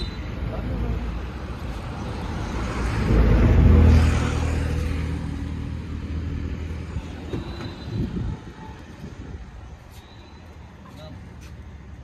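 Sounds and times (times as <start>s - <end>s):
vehicle engine rumble passing: 0.4s - 9.5s.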